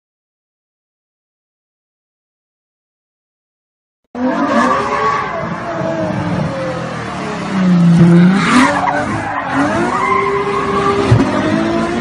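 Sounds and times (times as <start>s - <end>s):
car engine revving: 4.2s - 12.0s.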